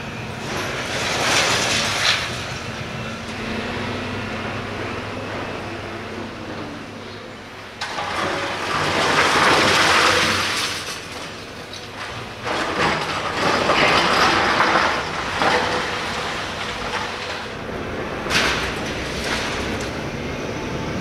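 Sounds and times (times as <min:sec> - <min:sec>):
excavator engine hum: 0:00.0 - 0:21.0
concrete crunching and crumbling: 0:06.8 - 0:20.2.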